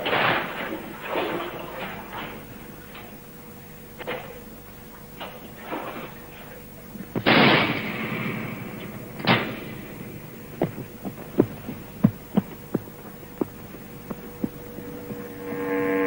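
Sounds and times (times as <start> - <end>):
steady soundtrack hum: 0.0 - 16.0
short irregular thuds: 7.0 - 15.3
loud crash: 7.2 - 10.0.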